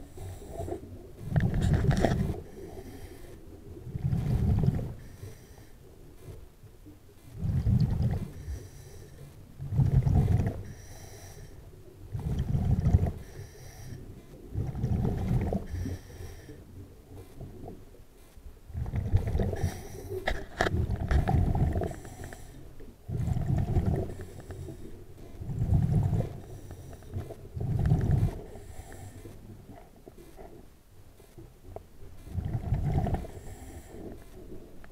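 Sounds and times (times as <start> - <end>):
scuba regulator breathing: 0.0 - 3.6, 4.2 - 6.4, 7.3 - 9.4, 10.5 - 11.7, 13.0 - 14.3, 15.5 - 17.4, 19.4 - 20.7, 21.7 - 29.4, 33.0 - 34.6
exhaled bubbles: 3.9 - 5.0, 7.4 - 8.4, 9.6 - 10.6, 12.1 - 13.2, 14.5 - 15.8, 18.7 - 19.8, 20.6 - 22.1, 23.0 - 24.3, 25.4 - 26.5, 27.5 - 28.6, 32.3 - 33.7.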